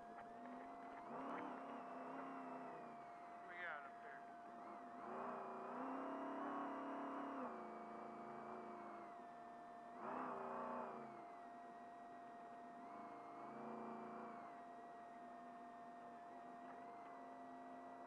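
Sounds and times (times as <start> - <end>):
truck engine revving: 0.0 - 9.1, 9.9 - 11.2, 12.8 - 14.6.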